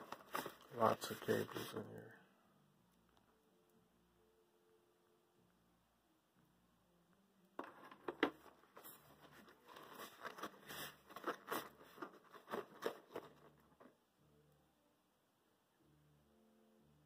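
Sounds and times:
cables rustling in fabric bag: 0:00.0 - 0:01.8, 0:08.7 - 0:13.9.

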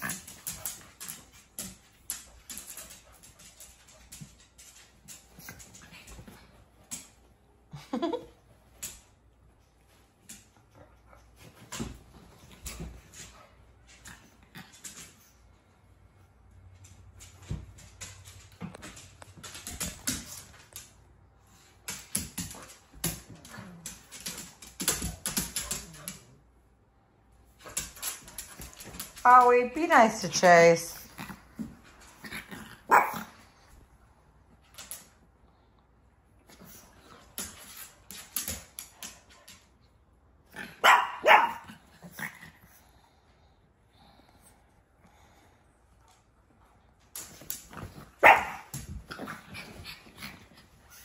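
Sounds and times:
dog claws clicking on hardwood floor: 0:00.0 - 0:07.3, 0:16.6 - 0:26.4, 0:27.6 - 0:29.7, 0:34.5 - 0:35.2, 0:36.5 - 0:39.7, 0:47.0 - 0:51.0
dog barking: 0:32.9 - 0:33.3, 0:40.8 - 0:41.7, 0:48.2 - 0:48.7.

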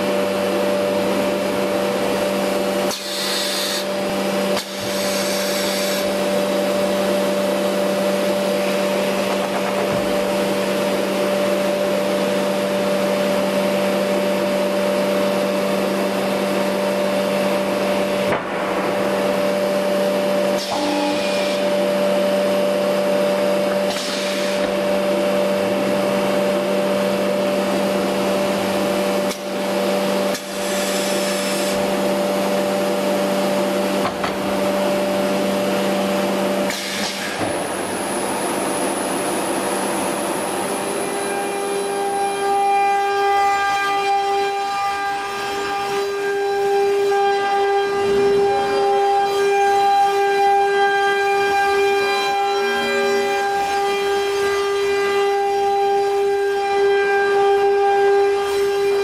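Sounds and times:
machinery drone and hum: 0:00.0 - 0:59.0
short air hisses: 0:02.9 - 0:03.9.

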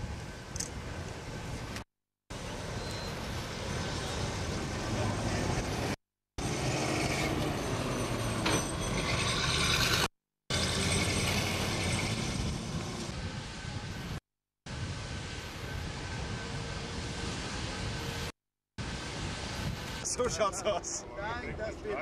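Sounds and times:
tram running along track: 0:00.0 - 0:14.2
bus driving past: 0:02.3 - 0:14.0.

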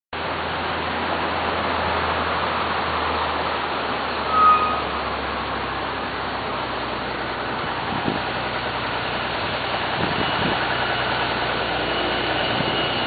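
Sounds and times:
road traffic noise: 0:00.1 - 0:13.0
short high beep: 0:04.3 - 0:05.0.

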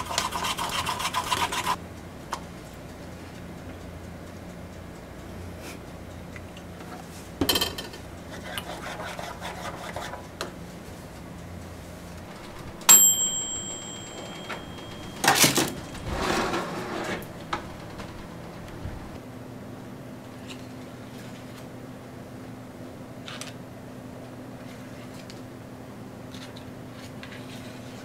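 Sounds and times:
timer bell ding: 0:12.9 - 0:16.1
clatters and knocks: 0:14.1 - 0:19.2.

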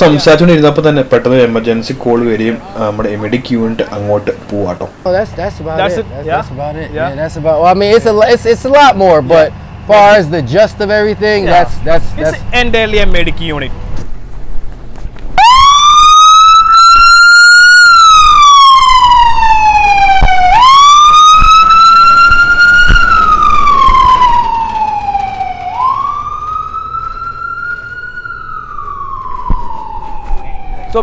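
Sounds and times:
ambulance siren wailing: 0:15.4 - 0:31.0.

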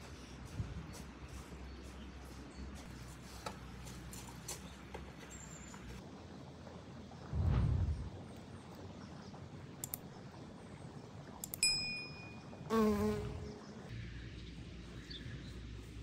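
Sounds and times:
soft clicks: 0:09.8 - 0:10.1, 0:11.4 - 0:11.6
bell-like ding: 0:11.6 - 0:12.4
honeybee buzzing: 0:12.7 - 0:13.8.

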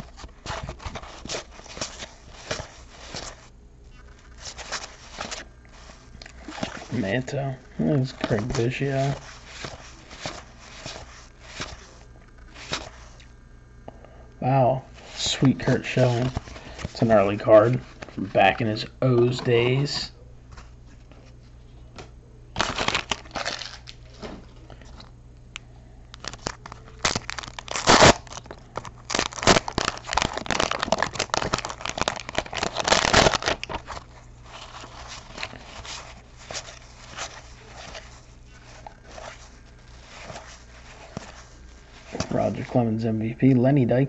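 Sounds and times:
wrapper crinkling and tearing: 0:00.0 - 0:07.0, 0:08.0 - 0:13.2, 0:22.6 - 0:24.3, 0:26.1 - 0:42.8.

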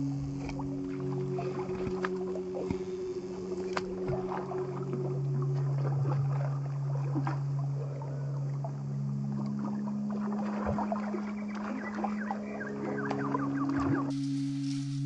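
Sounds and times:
music of held low notes: 0:00.0 - 0:15.0
fish splashing in water: 0:09.5 - 0:14.1.

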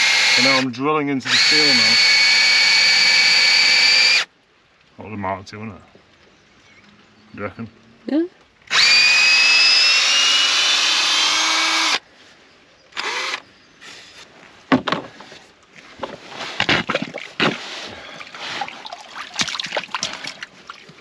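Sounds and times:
cordless drill boring into steel: 0:00.0 - 0:04.3, 0:08.7 - 0:12.0, 0:13.0 - 0:13.4
knocks and scrapes: 0:13.9 - 0:21.0.

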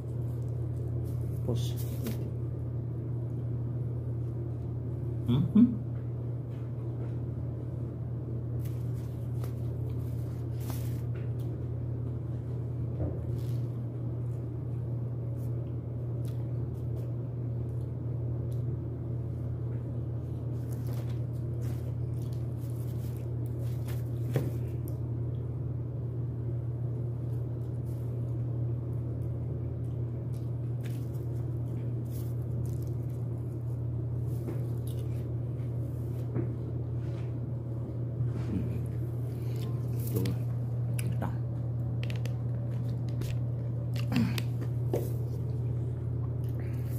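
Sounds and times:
steady low hum: 0:00.0 - 0:46.9
person chewing and crunching food: 0:20.2 - 0:25.0, 0:29.8 - 0:35.8, 0:38.8 - 0:46.9.

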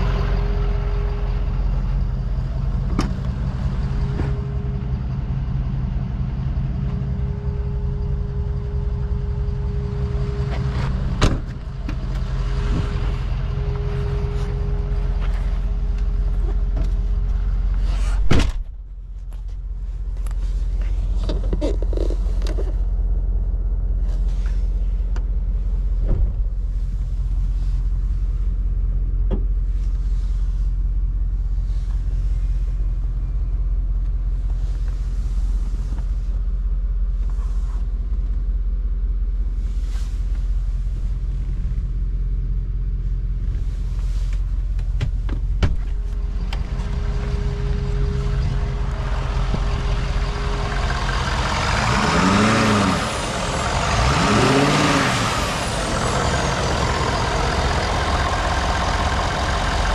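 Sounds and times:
diesel engine idling: 0:00.0 - 0:18.2, 0:18.8 - 0:59.9.

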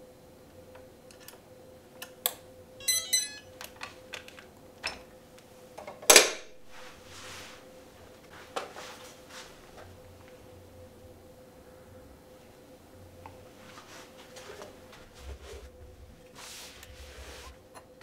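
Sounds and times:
faint steady hum: 0:06.6 - 0:18.0.

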